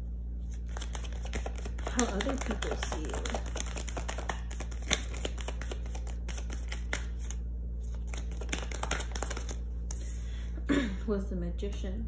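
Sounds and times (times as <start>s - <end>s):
steady low hum: 0.0s - 12.0s
cards shuffling: 0.4s - 10.1s
card snap: 0.7s - 10.0s.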